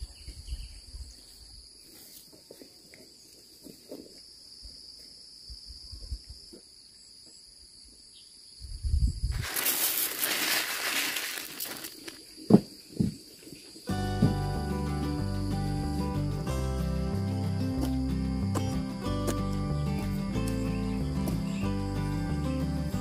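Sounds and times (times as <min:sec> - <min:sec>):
insects trilling: 0:00.0 - 0:23.0
plastic bag crinkling: 0:09.3 - 0:12.2
seeds pouring into basket: 0:09.3 - 0:12.2.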